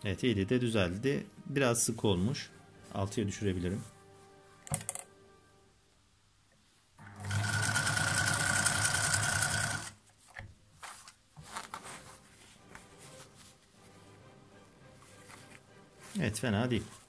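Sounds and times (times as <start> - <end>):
sewing machine stitching: 7.0 - 10.0
fabric rustles and clicks: 10.0 - 14.0.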